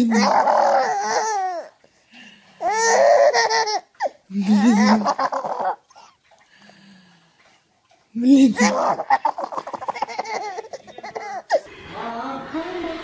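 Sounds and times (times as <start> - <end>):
baby laughing: 0.0 - 1.7, 2.6 - 5.9, 8.5 - 11.7.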